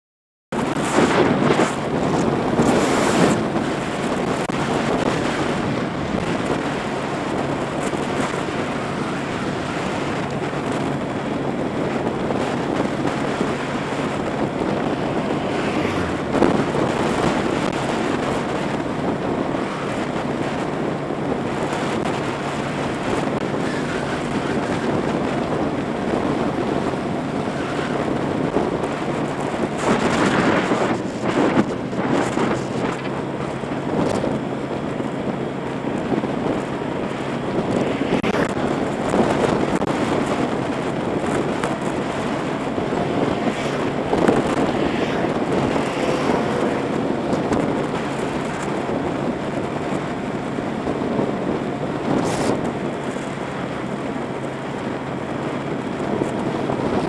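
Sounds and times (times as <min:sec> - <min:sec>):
wind rushing over microphone: 0:00.5 - 0:57.0
motorbike engine humming: 0:00.6 - 0:57.0.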